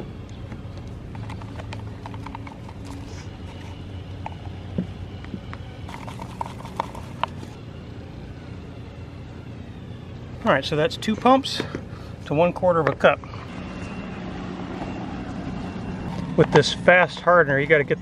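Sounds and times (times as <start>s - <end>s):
dispenser pumps clicking: 0.3s - 7.6s
stick scraping in plastic cup: 1.1s - 4.4s, 5.9s - 7.6s.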